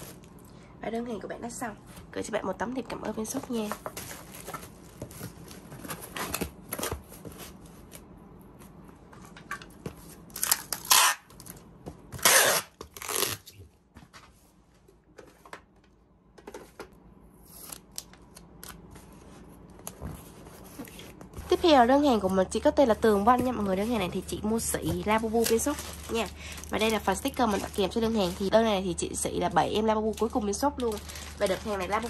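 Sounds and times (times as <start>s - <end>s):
cardboard handling noises: 3.2s - 10.6s, 17.5s - 28.7s, 30.0s - 32.0s
packing tape tearing: 10.3s - 13.6s.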